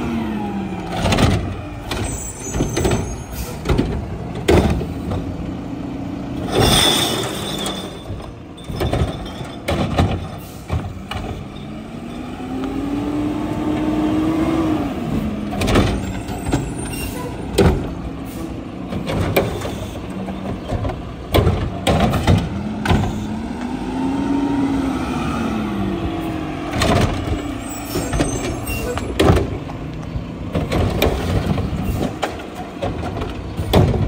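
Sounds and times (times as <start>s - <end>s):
garbage truck engine revving: 0.0s - 34.0s
sharp metallic clanks and bangs: 6.4s - 11.7s.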